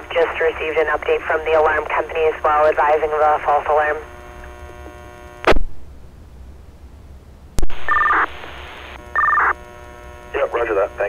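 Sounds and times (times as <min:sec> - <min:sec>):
radio buzzing hum: 0:00.0 - 0:05.9, 0:07.6 - 0:11.0
two-tone data chirp: 0:07.8 - 0:08.4, 0:09.1 - 0:09.6.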